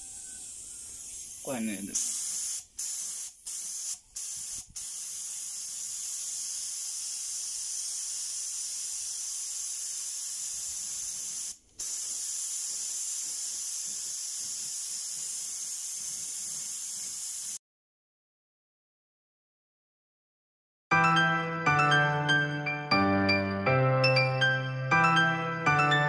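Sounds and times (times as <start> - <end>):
spray paint can hissing: 0.0 - 17.6.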